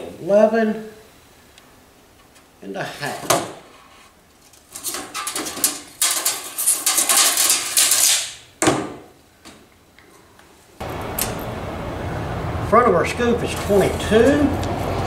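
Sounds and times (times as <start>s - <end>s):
tape measure rattling clicks: 5.6s - 8.4s
tape measure sharp clack: 6.0s - 8.4s
steady low hum: 9.2s - 15.0s.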